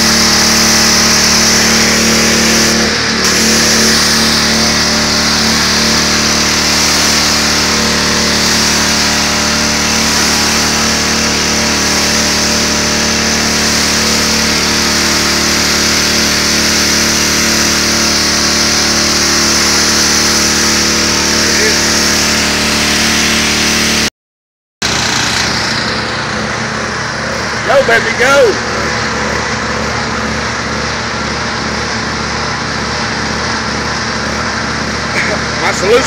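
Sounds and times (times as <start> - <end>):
pressure washer engine drone: 0.0 - 24.1, 24.8 - 36.0
water jet spraying concrete: 0.0 - 24.1, 31.4 - 36.0.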